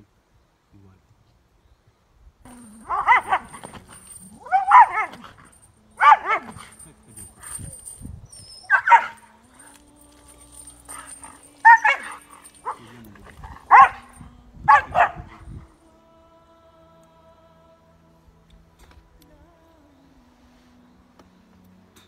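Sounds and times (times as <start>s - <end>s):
dog barking aggressively: 2.8s - 6.8s, 8.7s - 9.3s, 10.9s - 15.4s.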